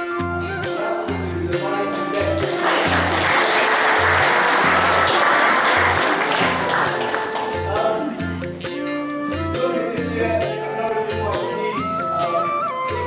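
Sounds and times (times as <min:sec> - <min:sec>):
audience applauding: 0:01.9 - 0:07.9.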